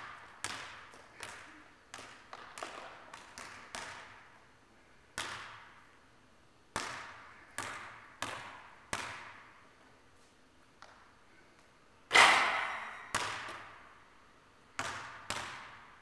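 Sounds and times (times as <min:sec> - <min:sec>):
basketball bouncing on gym floor: 0:00.0 - 0:04.3, 0:05.2 - 0:05.8, 0:06.7 - 0:09.6, 0:12.1 - 0:13.9, 0:14.7 - 0:16.0.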